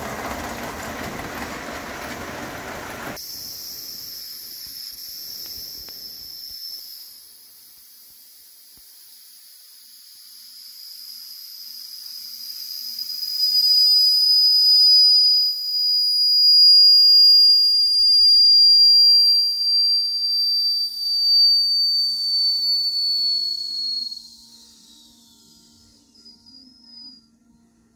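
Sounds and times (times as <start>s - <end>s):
high steam whistle: 10.3s - 27.6s.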